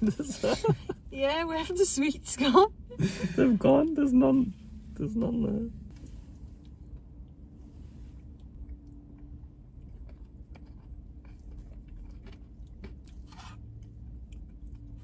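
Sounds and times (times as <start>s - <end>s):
low steady hum: 0.0s - 15.0s
quiet chewing: 8.1s - 15.0s.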